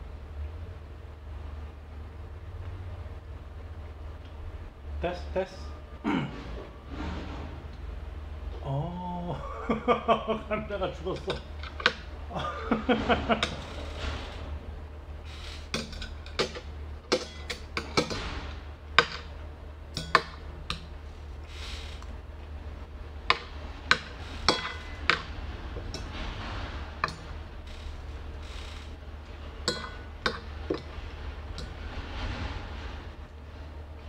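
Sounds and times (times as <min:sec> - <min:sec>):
metal utensils clinking on a plate: 0:15.8 - 0:18.2, 0:20.0 - 0:20.9, 0:23.3 - 0:25.3, 0:29.6 - 0:30.9.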